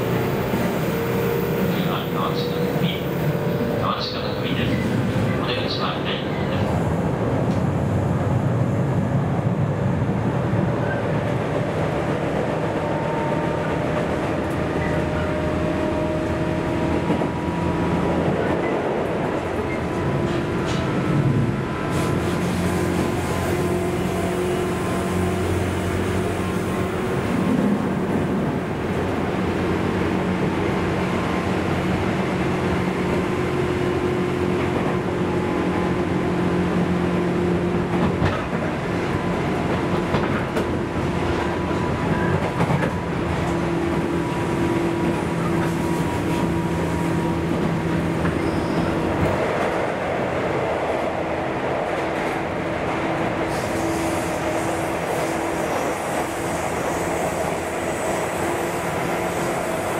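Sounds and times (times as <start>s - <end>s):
wheels rumbling on rail: 0.0s - 59.9s
rail joint clicks: 7.4s - 7.8s, 13.8s - 15.3s, 17.0s - 23.2s, 37.8s - 46.6s, 47.6s - 59.9s
tunnel hiss: 53.4s - 59.9s.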